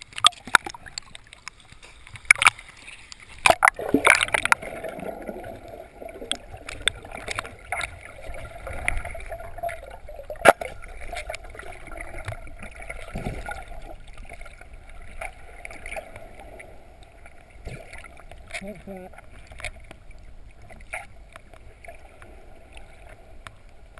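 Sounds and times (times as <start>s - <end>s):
small clicks underwater: 0.0s - 23.9s
water splashing and sloshing: 0.0s - 23.9s
muffled underwater noise: 18.4s - 19.5s.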